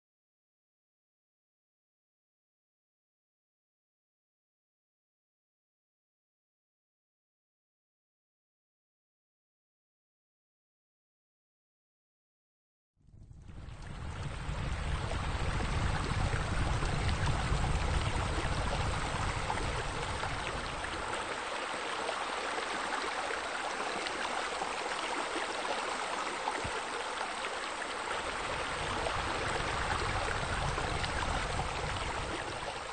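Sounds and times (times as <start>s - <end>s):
low rumble: 13.1s - 21.2s, 28.2s - 32.8s
running water: 13.4s - 32.9s.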